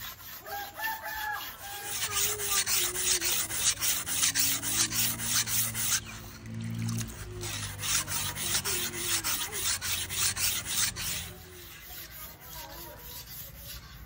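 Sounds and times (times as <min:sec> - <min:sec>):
rasping scraping strokes: 0:00.0 - 0:14.0.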